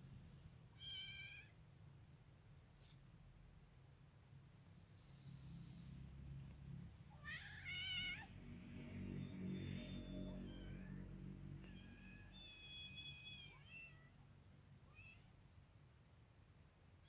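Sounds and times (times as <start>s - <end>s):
kitten meowing: 0.8s - 1.6s, 7.2s - 8.3s, 11.6s - 14.2s.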